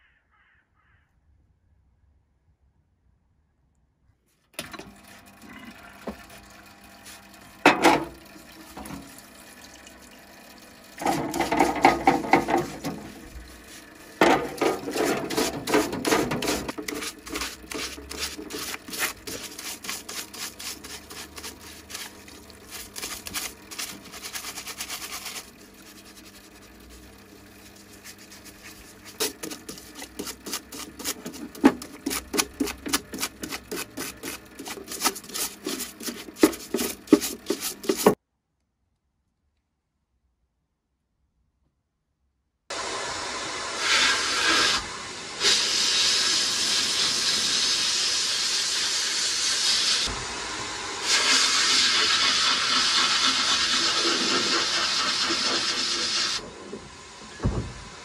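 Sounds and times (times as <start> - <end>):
brush scrubbing metal in water: 7.0 - 9.1, 11.0 - 38.2, 51.0 - 56.4.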